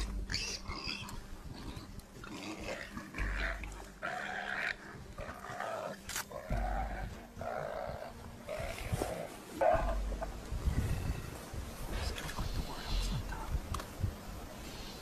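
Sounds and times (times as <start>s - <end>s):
harsh animal calls and growls: 0.0s - 10.4s.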